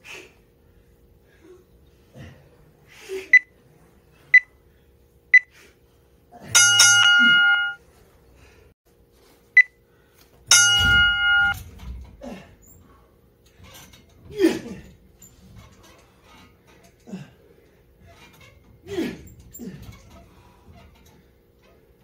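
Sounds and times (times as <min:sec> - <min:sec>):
timer long beep: 0:06.6 - 0:07.8, 0:10.5 - 0:11.6
timer short beeps: 0:06.6 - 0:07.8, 0:10.5 - 0:11.6.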